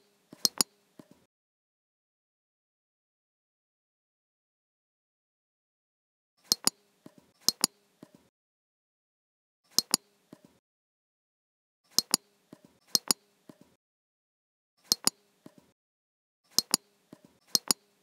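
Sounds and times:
mouse button clicking: 0.4s - 1.2s, 6.5s - 8.2s, 9.7s - 10.5s, 11.9s - 12.2s, 12.9s - 13.6s, 14.9s - 15.6s, 16.5s - 16.9s, 17.5s - 17.8s.

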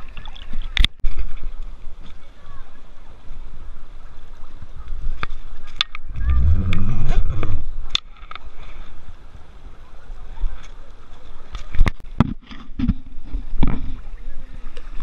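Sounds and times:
loud rumbling splash: 6.1s - 7.8s.

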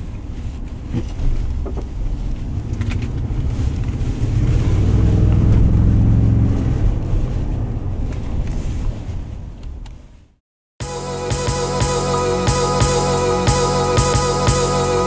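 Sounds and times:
road and wind noise: 0.0s - 10.4s
truck engine from inside cab: 0.9s - 7.9s.

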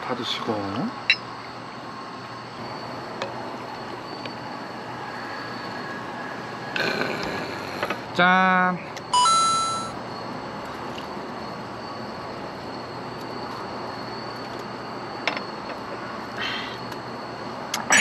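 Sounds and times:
outdoor background hiss: 0.0s - 18.0s
bright ringing ding: 9.2s - 10.0s
faint high steady tone: 9.2s - 10.0s.

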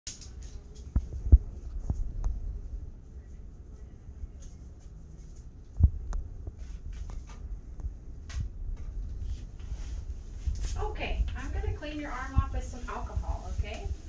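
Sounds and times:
low room hum: 0.1s - 14.0s.

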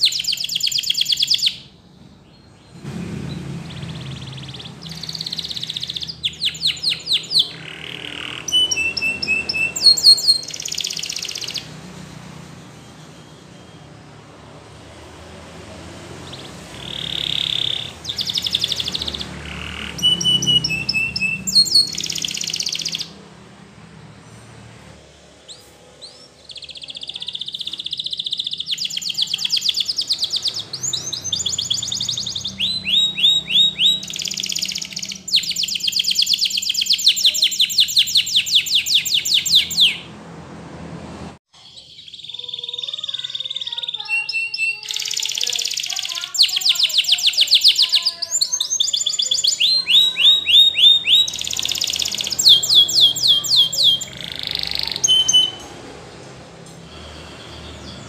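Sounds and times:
canary singing trills: 0.0s - 40.2s, 41.6s - 58.0s
sharp downward whistles: 8.1s - 11.7s, 16.3s - 23.1s, 26.5s - 40.1s.

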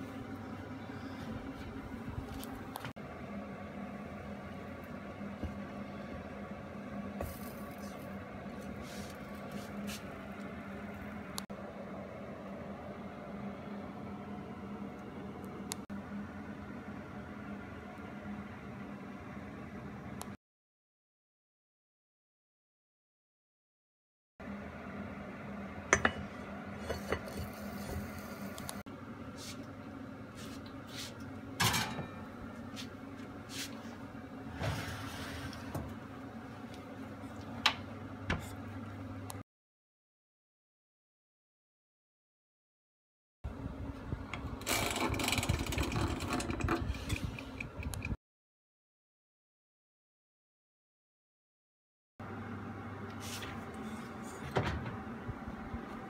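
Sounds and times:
kitchen appliance humming: 0.0s - 20.3s, 24.4s - 39.4s, 43.5s - 48.2s
dish scraping on oven rack: 26.0s - 28.6s, 31.6s - 32.3s, 44.6s - 47.4s, 53.2s - 54.9s.

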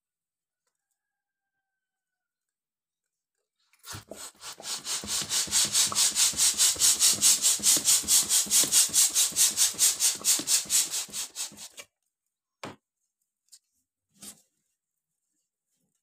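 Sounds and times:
hand balloon pump hissing: 3.8s - 11.8s.

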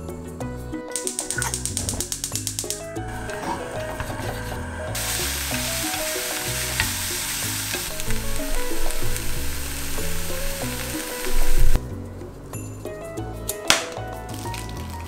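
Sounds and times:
noodles sizzling in a wok: 2.2s - 11.8s.

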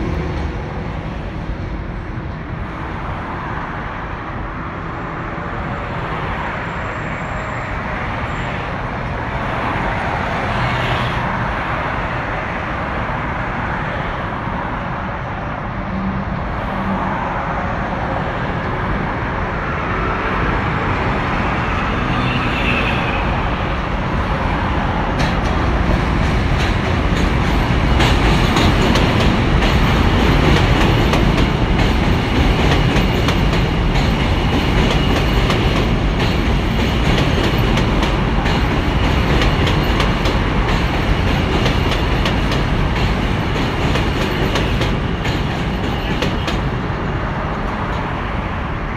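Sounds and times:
subway train rumbling over bridge: 0.0s - 48.9s
wheels clacking over rail joints: 24.6s - 46.9s.

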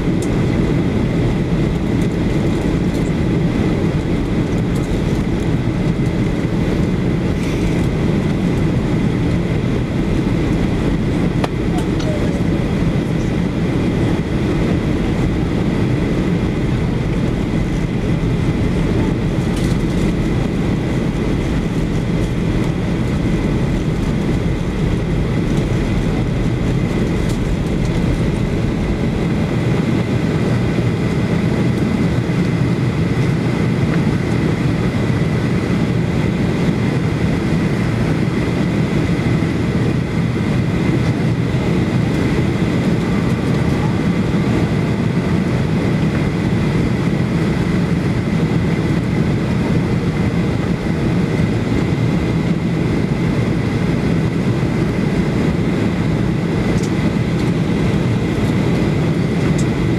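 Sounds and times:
airflow past fuselage: 0.0s - 59.9s
jet engines rushing: 0.0s - 59.9s.

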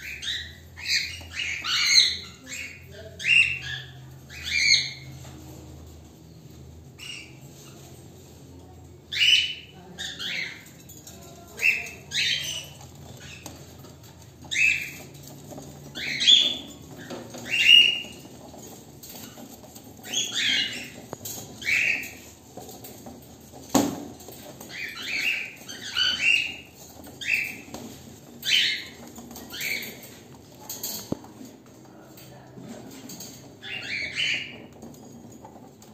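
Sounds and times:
cockatiels chirping: 0.0s - 5.3s, 9.1s - 10.8s, 11.5s - 22.8s, 24.6s - 31.2s, 33.6s - 34.9s.

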